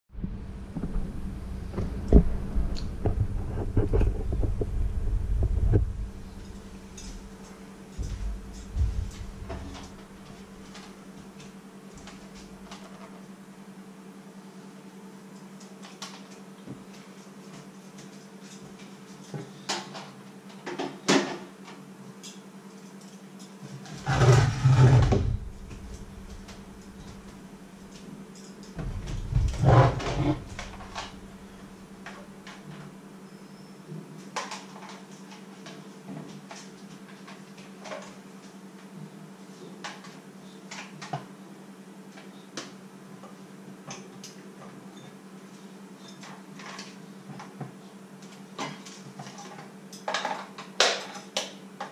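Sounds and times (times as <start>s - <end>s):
steady electrical hum: 0.1s - 51.9s
clattering bumps: 0.2s - 10.5s, 24.0s - 27.4s, 28.8s - 31.8s.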